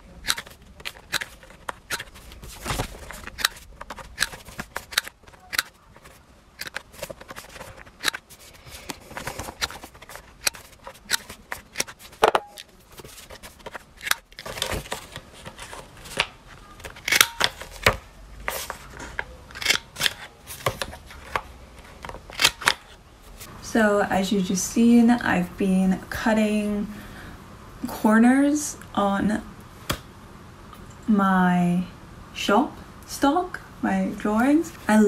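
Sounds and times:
paper prints rustling: 0.0 - 23.5.

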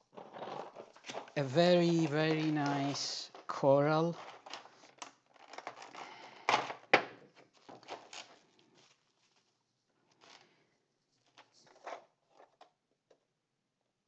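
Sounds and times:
bubble wrap crinkling: 0.1 - 6.4, 7.4 - 10.5.

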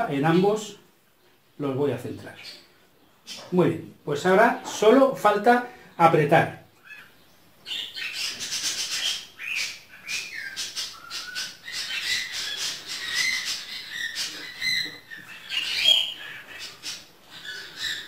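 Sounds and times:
bird chattering and chirping: 6.8 - 18.0.

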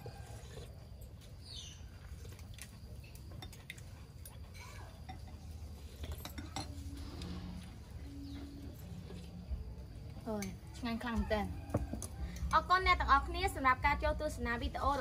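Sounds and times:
chopsticks clinking on bowls: 3.0 - 7.0.

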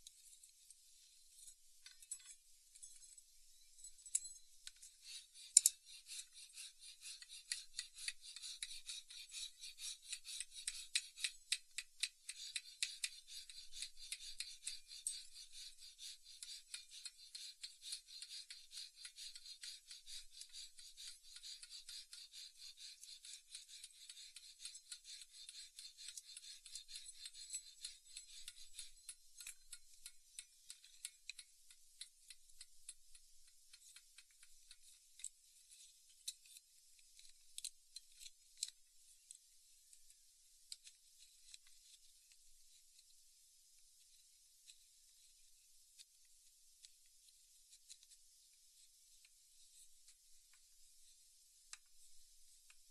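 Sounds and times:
file rasping on wooden handle: 5.0 - 34.9.

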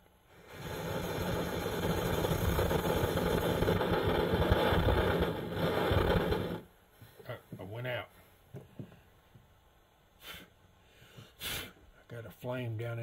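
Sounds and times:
camping stove burning roar: 0.0 - 7.2.

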